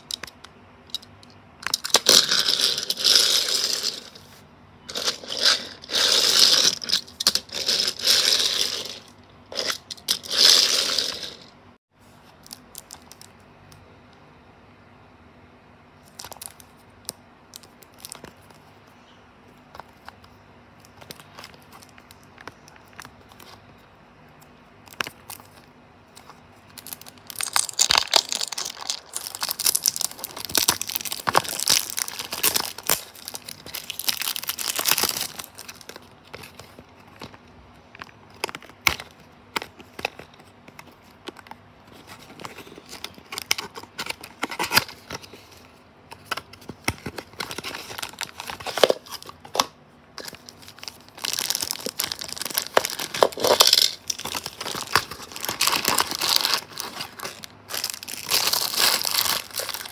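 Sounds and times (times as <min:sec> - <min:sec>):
plastic film crinkling and tearing: 0:26.7 - 0:39.1, 0:46.2 - 0:49.6, 0:50.2 - 0:59.9.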